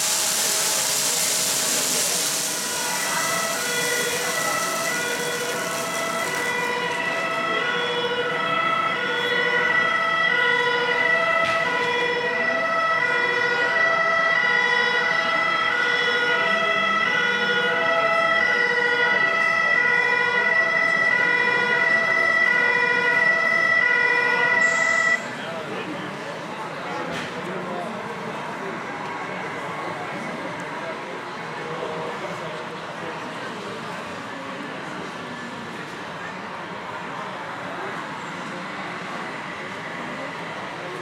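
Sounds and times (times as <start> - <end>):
steady high tone: 0.0 - 7.5
two-tone fire engine siren: 0.0 - 25.6.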